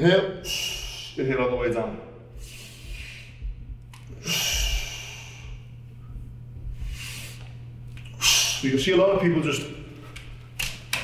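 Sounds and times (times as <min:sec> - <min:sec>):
steady low hum: 0:00.0 - 0:11.0
man breathing: 0:00.4 - 0:01.2, 0:02.2 - 0:08.6.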